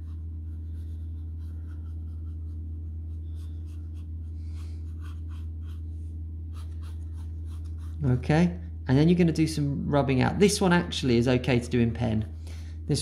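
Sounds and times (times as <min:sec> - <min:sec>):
pen scratching on paper: 0:00.0 - 0:05.9, 0:06.5 - 0:08.1
steady low hum: 0:00.0 - 0:13.0.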